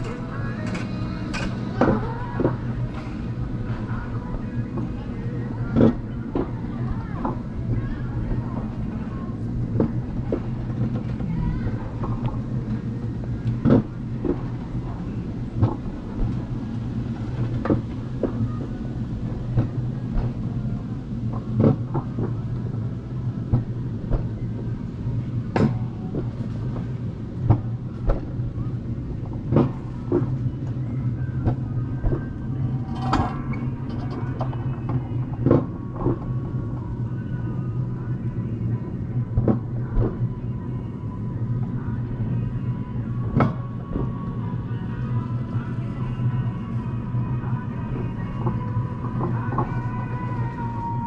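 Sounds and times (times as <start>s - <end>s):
low rumble of wheels on rails: 0.0s - 51.0s.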